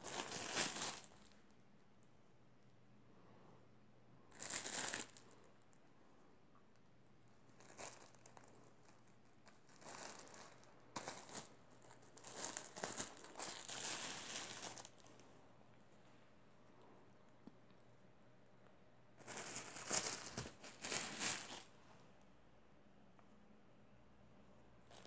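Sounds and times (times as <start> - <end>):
plastic bags crinkling: 0.0 - 1.4, 4.3 - 5.2, 7.6 - 15.2, 19.2 - 21.7.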